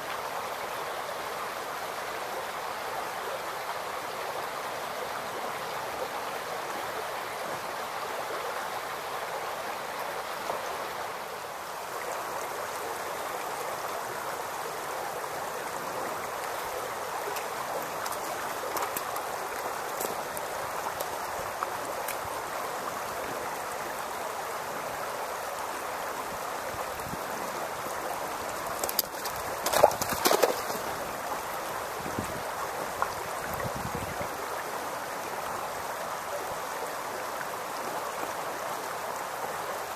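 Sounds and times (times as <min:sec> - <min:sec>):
creek babbling over stones: 0:00.0 - 0:39.9.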